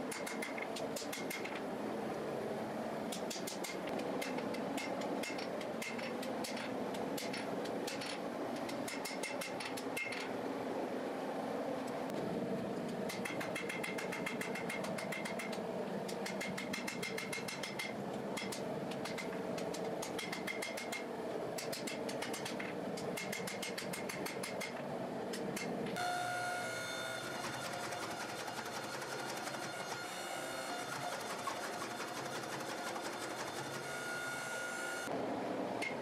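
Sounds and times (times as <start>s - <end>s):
machine hum with held tone: 0.0s - 36.0s
hammer striking steel on anvil: 16.2s - 19.3s.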